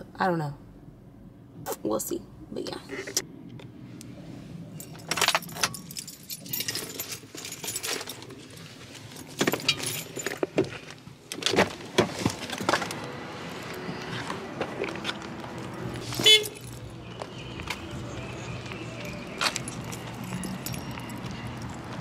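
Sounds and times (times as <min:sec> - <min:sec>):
keys jangling: 0:04.8 - 0:08.5, 0:09.1 - 0:10.5, 0:16.0 - 0:16.9, 0:18.9 - 0:22.0.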